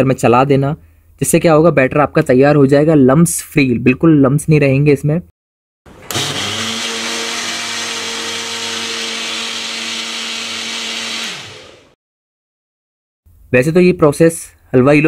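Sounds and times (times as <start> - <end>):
kitchen mixer whining: 5.9 - 12.0.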